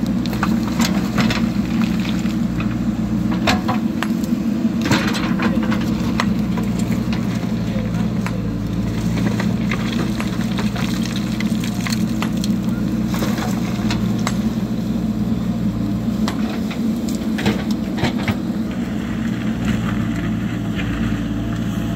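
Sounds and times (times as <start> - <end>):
diesel engine running: 0.0 - 21.9
rocks and stones clattering: 0.2 - 2.7, 4.8 - 14.4.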